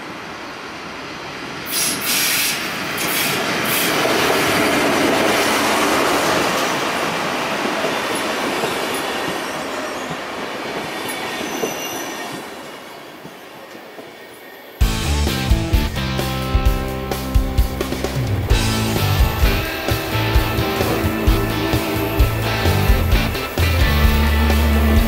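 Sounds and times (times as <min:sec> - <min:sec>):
train rumbling on rails: 0:00.0 - 0:25.0
high wheel squeals: 0:11.0 - 0:13.0, 0:18.9 - 0:25.0.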